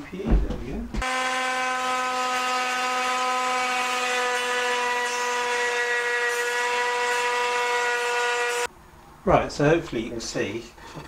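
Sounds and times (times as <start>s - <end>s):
electric wood router whining: 1.0s - 8.7s.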